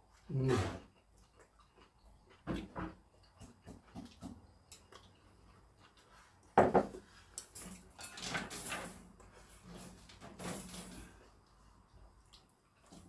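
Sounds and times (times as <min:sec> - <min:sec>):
chewing: 0:00.0 - 0:06.6, 0:11.2 - 0:13.0
bowl knocking on wooden table: 0:06.6 - 0:07.0.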